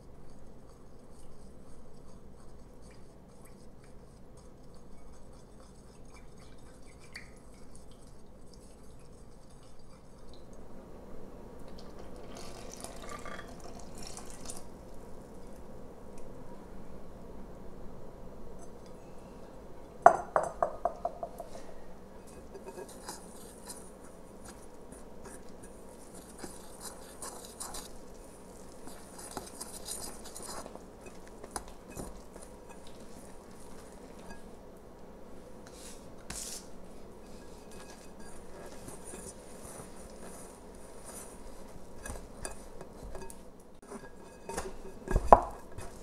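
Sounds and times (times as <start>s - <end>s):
whisk stirring dough: 0.0s - 10.6s, 22.2s - 34.6s, 35.4s - 46.0s.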